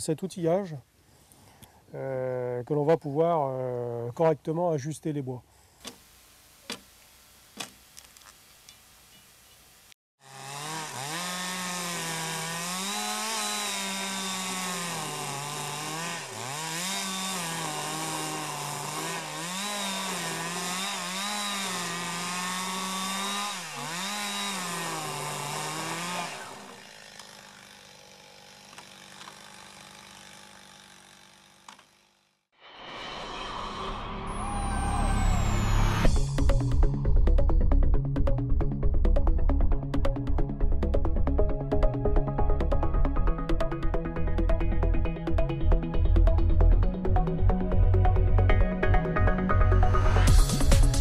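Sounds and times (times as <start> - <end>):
chainsaw cutting a log: 10.2 - 32.4.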